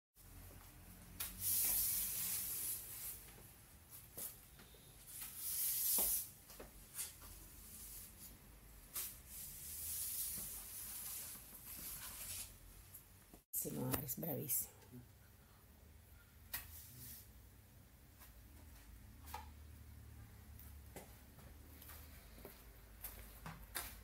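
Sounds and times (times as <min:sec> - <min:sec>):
broom sweeping wooden floor: 0:01.2 - 0:12.6, 0:16.6 - 0:17.3.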